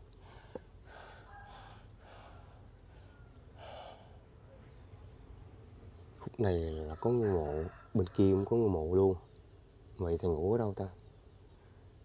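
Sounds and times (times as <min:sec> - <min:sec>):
high-pitched insect drone: 0:00.0 - 0:12.0
short faint calls: 0:00.2 - 0:06.3.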